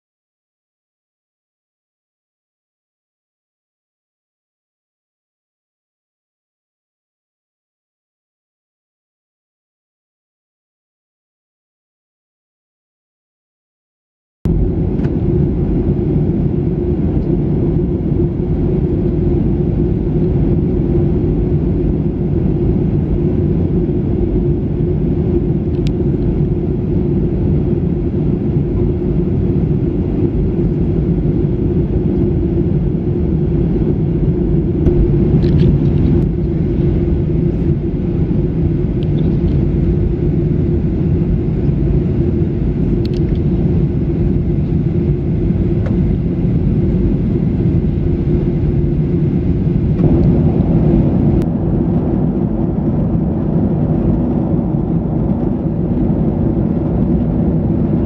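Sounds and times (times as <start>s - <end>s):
airplane cabin drone: 14.5s - 58.0s.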